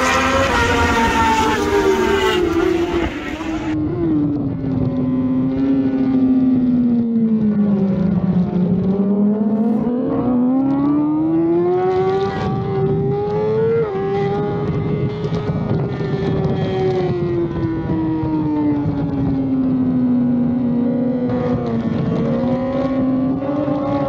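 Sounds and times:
motorcycle engine revving: 0:00.0 - 0:03.8
wind noise: 0:00.0 - 0:10.0, 0:10.7 - 0:24.0.

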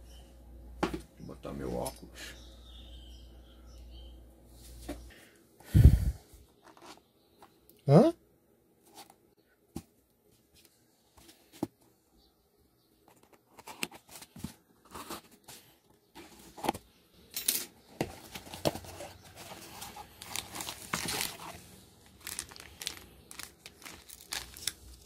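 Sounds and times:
plastic bag crinkling: 0:18.5 - 0:25.0
packing tape being slit and torn: 0:22.2 - 0:25.0.

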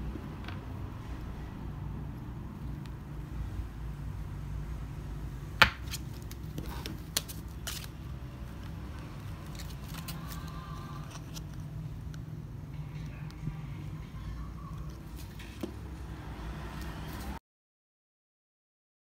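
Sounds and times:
low background hum: 0:00.0 - 0:17.4
paper rustling: 0:05.8 - 0:11.7.

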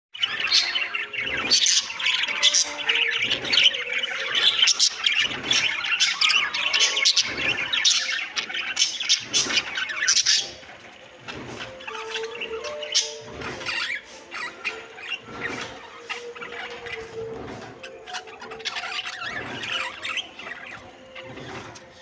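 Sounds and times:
budgerigars chattering and squawking: 0:00.2 - 0:22.0.

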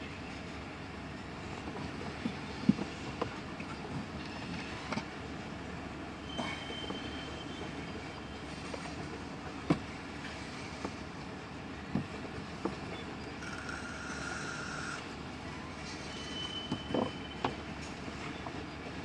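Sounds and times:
train wheels rumbling on rail: 0:00.0 - 0:19.0
wheel squeal: 0:06.2 - 0:08.6, 0:12.9 - 0:15.0, 0:15.8 - 0:17.6
train cars clanking: 0:06.2 - 0:11.0, 0:15.6 - 0:19.0.

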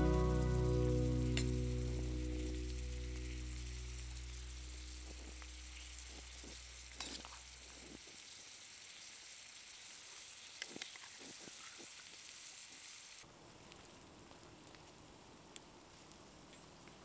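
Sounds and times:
background music: 0:00.0 - 0:04.1
pot simmering hiss: 0:00.0 - 0:17.0.

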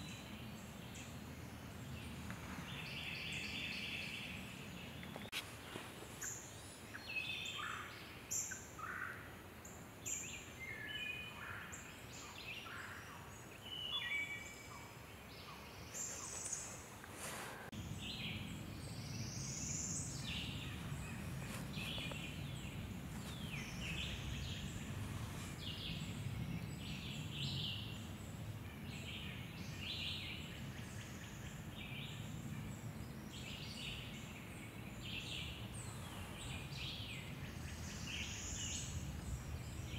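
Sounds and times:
songbirds singing: 0:00.0 - 0:39.9
steady low rumble: 0:17.7 - 0:28.8.

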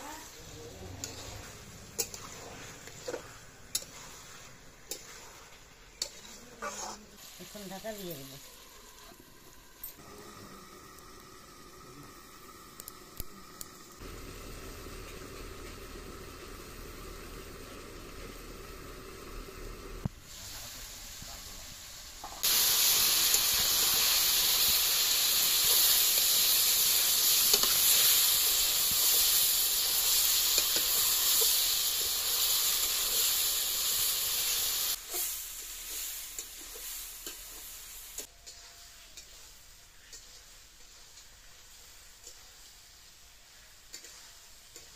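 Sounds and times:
curry sizzling in an iron pan: 0:00.0 - 0:44.9
metal spatula stirring: 0:00.5 - 0:08.3, 0:35.1 - 0:41.4.

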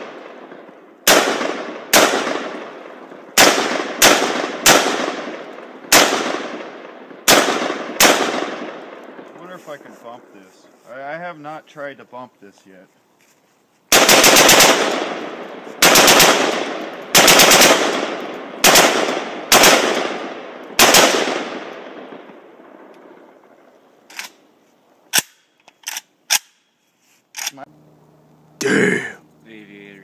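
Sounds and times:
rifle firing rapid bursts: 0:01.0 - 0:02.8, 0:03.4 - 0:06.7, 0:07.3 - 0:08.8, 0:13.9 - 0:21.7.

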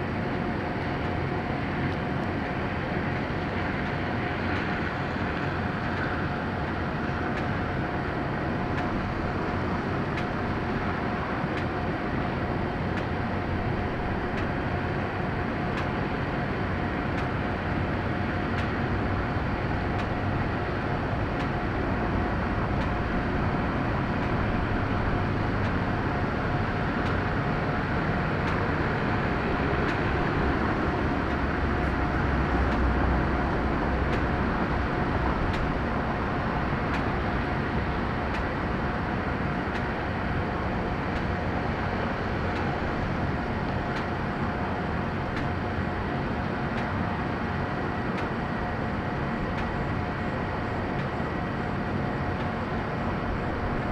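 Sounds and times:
jet engines running: 0:00.0 - 0:53.9.

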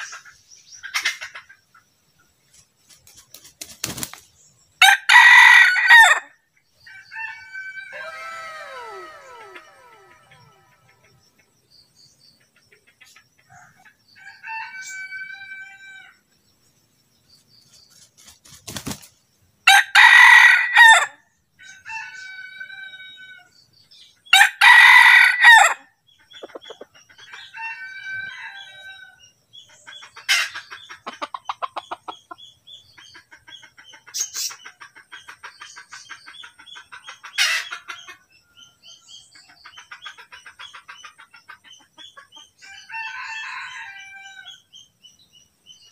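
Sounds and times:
chicken clucking: 0:00.0 - 0:04.2, 0:12.4 - 0:14.0, 0:26.2 - 0:27.9, 0:29.6 - 0:43.0
rooster crowing: 0:04.8 - 0:11.1, 0:14.2 - 0:16.2, 0:19.7 - 0:23.5, 0:24.3 - 0:25.8, 0:27.4 - 0:29.2, 0:42.6 - 0:44.6.

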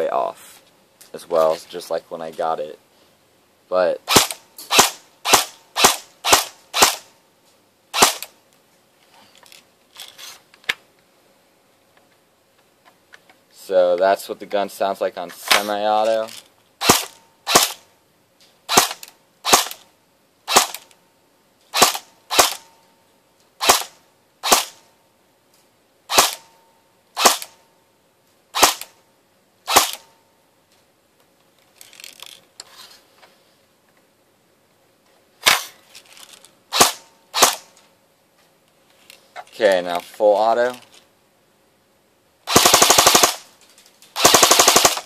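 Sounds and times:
airsoft gun shots cracking: 0:04.1 - 0:07.1, 0:07.9 - 0:08.3, 0:16.8 - 0:17.8, 0:18.7 - 0:19.8, 0:20.5 - 0:20.8, 0:21.8 - 0:22.7, 0:23.6 - 0:24.8, 0:26.1 - 0:26.4, 0:27.2 - 0:27.6, 0:28.6 - 0:28.9, 0:29.7 - 0:30.1, 0:36.7 - 0:37.7.

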